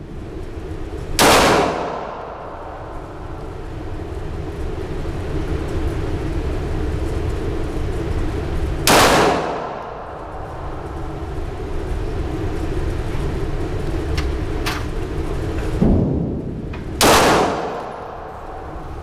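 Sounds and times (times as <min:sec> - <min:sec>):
steady low rumble: 0:00.0 - 0:19.0
pistol shot with echo: 0:01.2 - 0:02.2, 0:08.9 - 0:09.9, 0:17.0 - 0:18.1.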